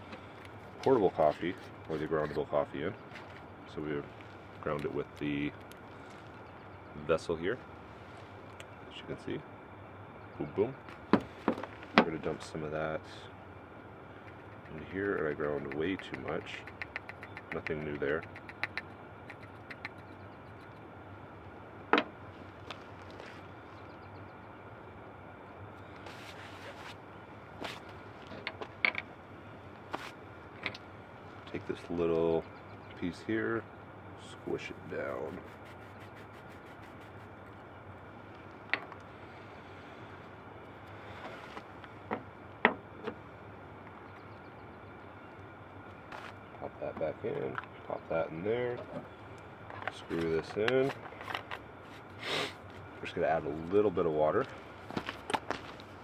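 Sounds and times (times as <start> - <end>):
steady background hiss: 0.0 - 56.0
small parts clicking and tapping: 14.2 - 20.8.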